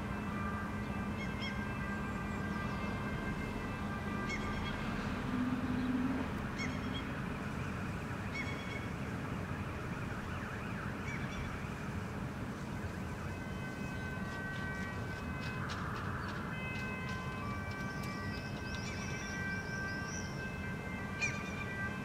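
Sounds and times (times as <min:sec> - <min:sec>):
low honk: 0:00.0 - 0:07.9
urban background rumble: 0:00.0 - 0:22.0
bird calls: 0:04.2 - 0:07.2, 0:08.3 - 0:08.9, 0:14.8 - 0:20.5, 0:21.2 - 0:21.8.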